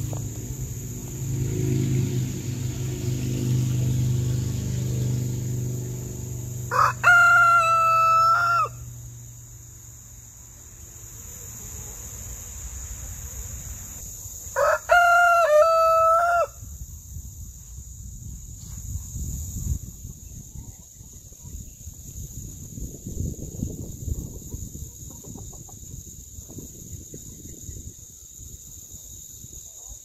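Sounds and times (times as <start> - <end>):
rooster crowing: 6.6 - 9.0, 14.5 - 16.7.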